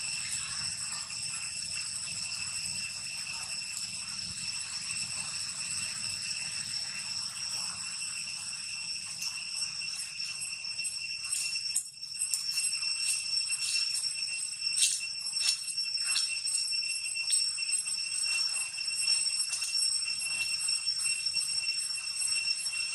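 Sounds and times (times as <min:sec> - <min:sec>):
cicadas droning: 0:00.0 - 0:22.9.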